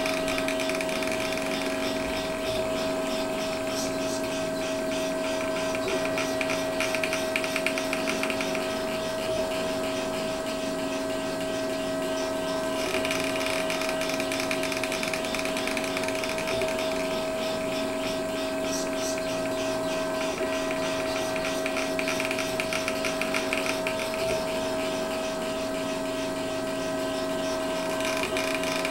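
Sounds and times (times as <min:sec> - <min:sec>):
fast pulsing chatter: 0:00.0 - 0:28.9
stepper motors whining: 0:00.0 - 0:28.9.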